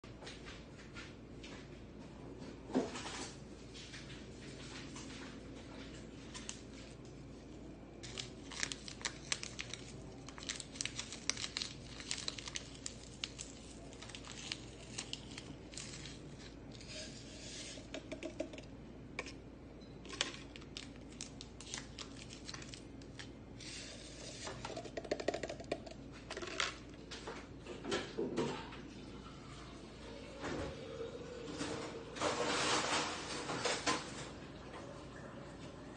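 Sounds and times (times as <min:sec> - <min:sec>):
plastic packets crinkling and tearing: 0:08.0 - 0:16.6, 0:20.1 - 0:23.4.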